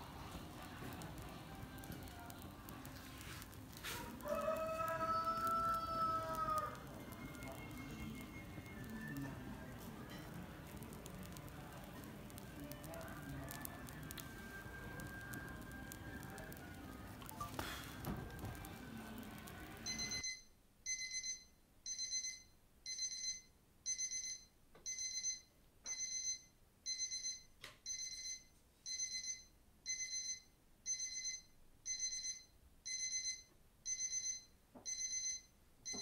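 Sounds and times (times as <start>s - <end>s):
electronic alarm beeping: 19.8s - 36.0s.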